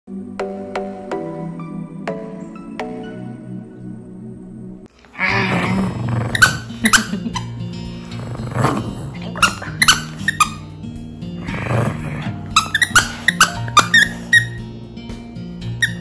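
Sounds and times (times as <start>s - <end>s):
background music: 0.1s - 16.0s
dog growling playfully: 5.2s - 10.4s, 11.2s - 14.1s.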